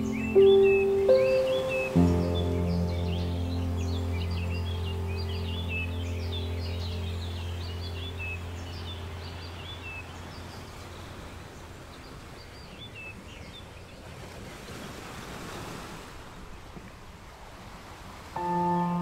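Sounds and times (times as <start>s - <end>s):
low held music tone: 0.0s - 12.1s, 18.4s - 19.0s
small birds chirping: 0.0s - 14.8s
sea waves washing on shore: 0.0s - 19.0s.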